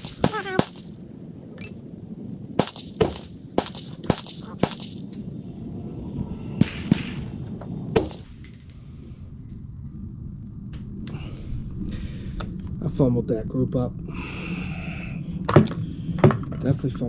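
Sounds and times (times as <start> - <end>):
rifle shots: 0.0 - 1.0, 2.6 - 5.1, 6.6 - 7.4.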